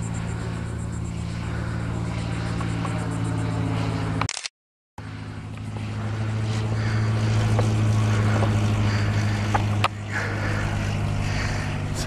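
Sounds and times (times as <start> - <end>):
propeller airplane engine drone: 0.0 - 12.0
sharp clicks: 4.2 - 4.5.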